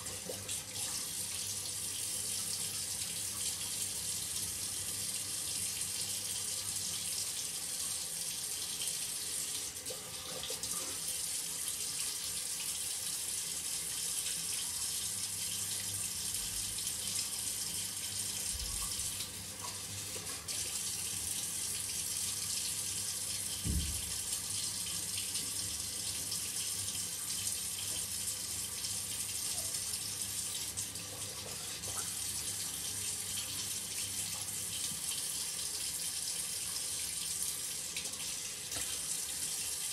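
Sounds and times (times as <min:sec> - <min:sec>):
shower running: 0:00.0 - 0:39.9.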